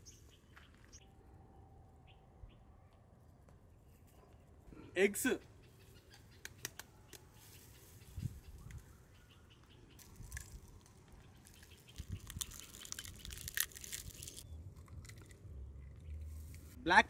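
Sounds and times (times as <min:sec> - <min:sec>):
eggs cracking: 0:10.0 - 0:15.5.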